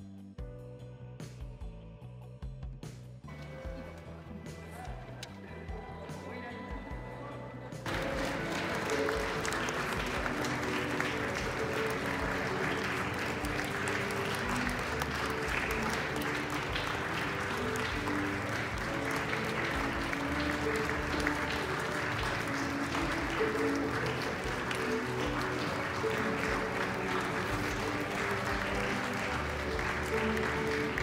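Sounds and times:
crowd applauding: 7.8s - 31.0s
music of held notes: 7.8s - 31.0s.

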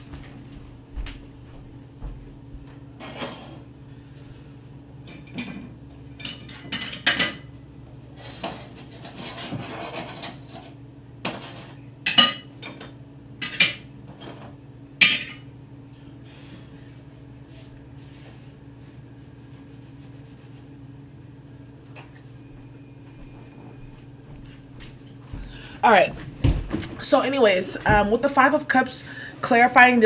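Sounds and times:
low hum: 21.2s - 28.3s.

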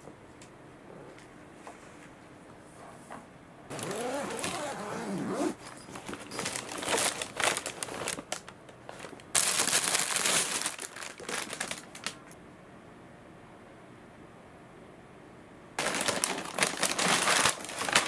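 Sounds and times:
zipper pulled open: 3.7s - 5.6s
plastic packaging crinkling: 3.7s - 12.4s, 15.8s - 18.0s.

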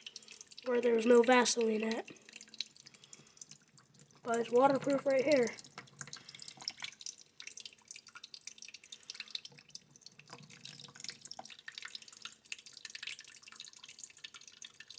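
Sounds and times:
water dripping into a sink: 0.0s - 14.9s.

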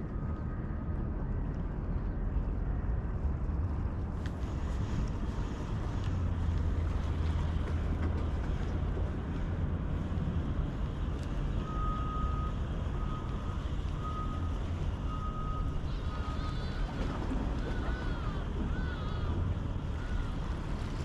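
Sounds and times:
vehicle reversing alarm beeping: 11.6s - 18.2s.

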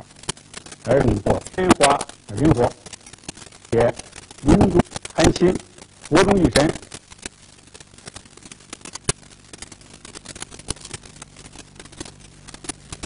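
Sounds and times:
low hum: 0.0s - 13.0s
record clicks and crackles: 0.0s - 13.0s.

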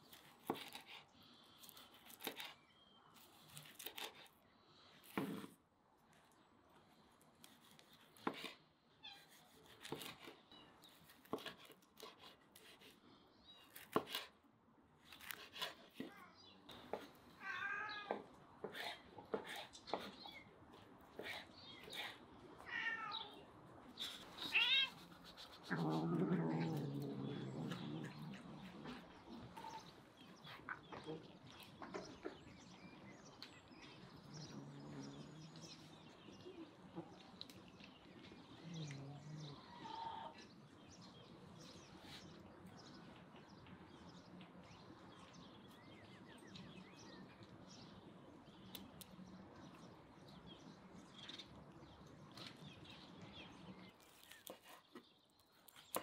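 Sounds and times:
cat yowling: 17.4s - 18.1s, 22.6s - 23.4s, 24.4s - 25.0s.

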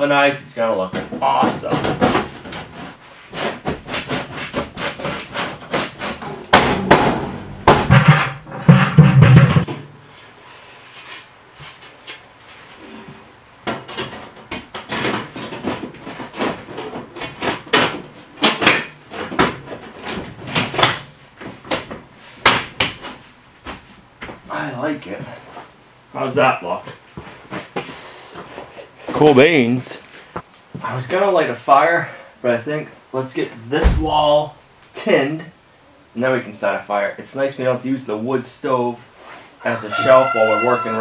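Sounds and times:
sheet metal clanking and knocking: 6.1s - 9.8s.

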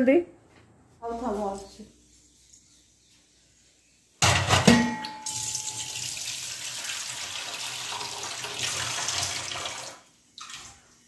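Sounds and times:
water running into sink: 5.2s - 10.9s.

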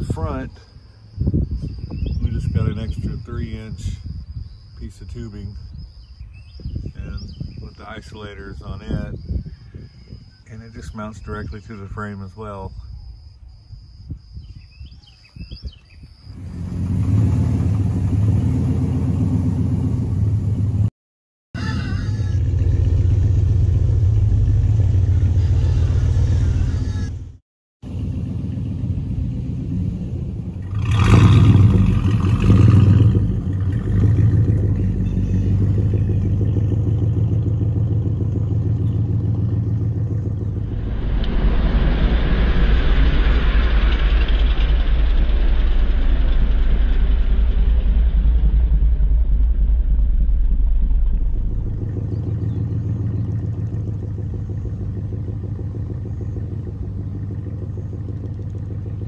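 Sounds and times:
pickup truck engine revving: 16.4s - 20.8s, 28.8s - 44.2s.

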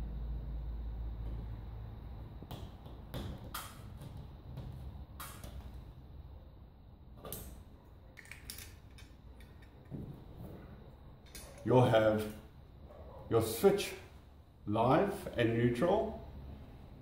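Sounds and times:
metal light fitting clicking and knocking: 8.2s - 10.0s, 11.2s - 12.4s.

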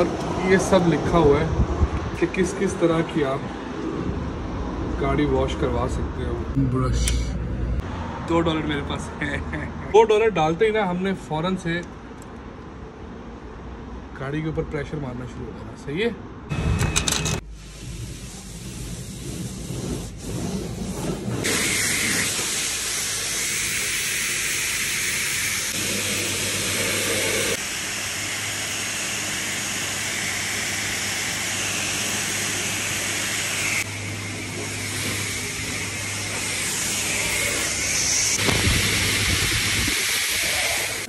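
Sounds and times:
high-pressure water jet hissing: 21.4s - 41.0s.

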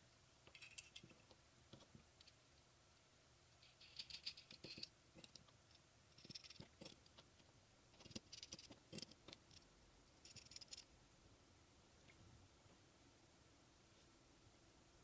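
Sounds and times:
small steel parts clicking: 0.4s - 1.4s, 3.6s - 10.9s.

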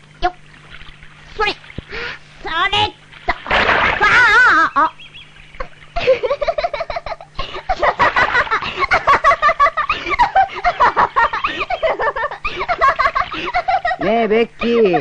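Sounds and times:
girl laughing: 4.0s - 5.0s, 5.6s - 14.1s.

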